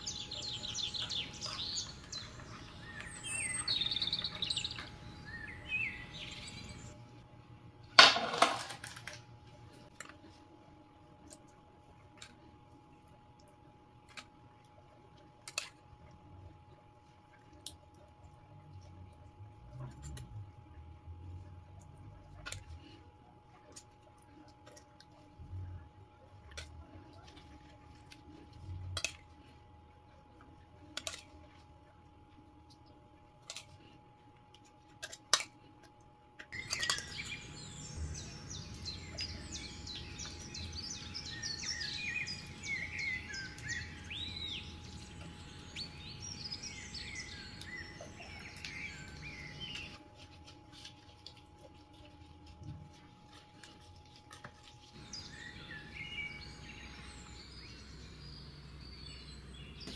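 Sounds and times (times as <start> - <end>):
birds chirping and singing: 0.0 - 7.0, 36.6 - 50.0, 55.0 - 59.9
faint steady hum: 0.0 - 59.9.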